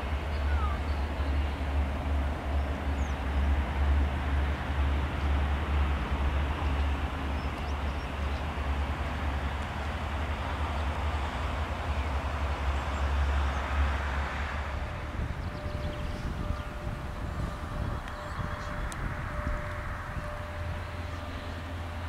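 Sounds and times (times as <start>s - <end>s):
locomotive engine rumble: 0.0s - 22.0s
train coaches running on rails: 0.0s - 22.0s.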